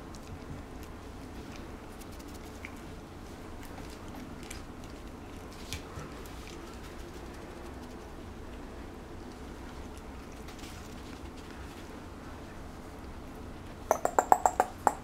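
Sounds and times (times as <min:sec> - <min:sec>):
puppy nibbling mouth sounds: 0:00.0 - 0:12.0
steady low hum: 0:00.0 - 0:15.0.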